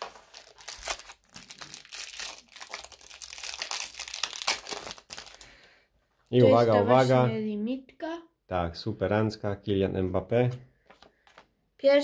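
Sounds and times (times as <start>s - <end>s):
plastic wrapper crinkling: 0.0s - 5.6s.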